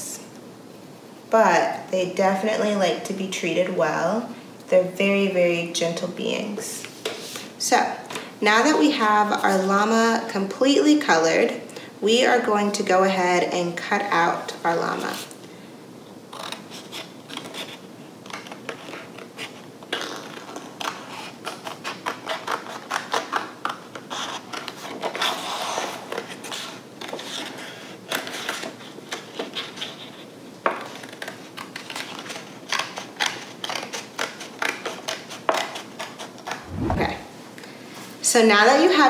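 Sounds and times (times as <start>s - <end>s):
scissors snipping paper: 30.8s - 36.6s.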